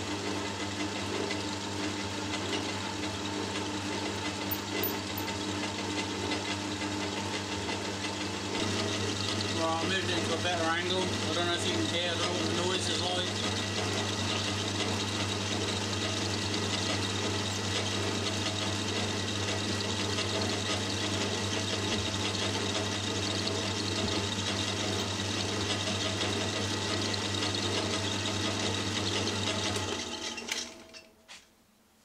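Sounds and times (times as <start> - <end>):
lathe motor hum: 0.1 - 30.9
lathe tool cutting metal: 8.2 - 30.5.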